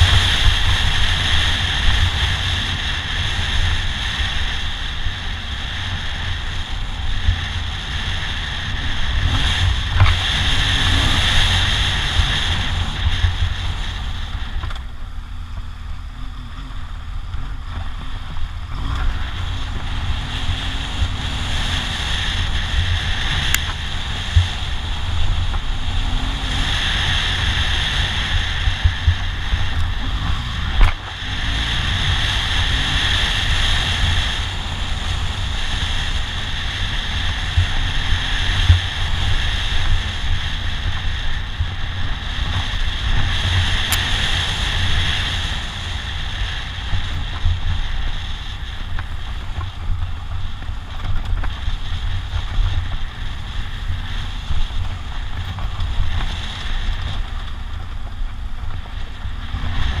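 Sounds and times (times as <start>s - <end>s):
wind buffeting on microphone: 0.0s - 15.9s
motorcycle engine running: 0.0s - 60.0s.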